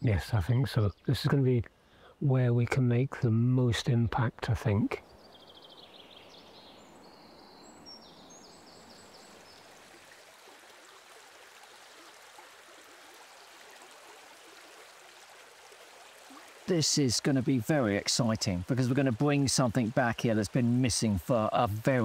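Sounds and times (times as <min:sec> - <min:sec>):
brook flowing: 0:05.0 - 0:22.0.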